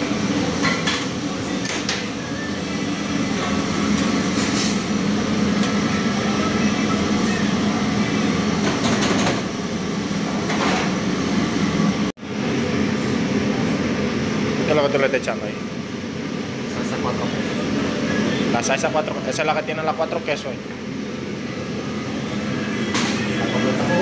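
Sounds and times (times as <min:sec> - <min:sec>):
kitchen equipment humming: 0:00.0 - 0:24.0.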